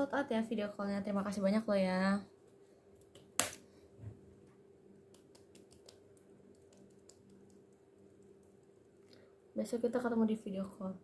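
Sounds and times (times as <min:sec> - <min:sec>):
low steady hum: 0:00.0 - 0:11.0
fingertips patting skin: 0:05.1 - 0:08.8.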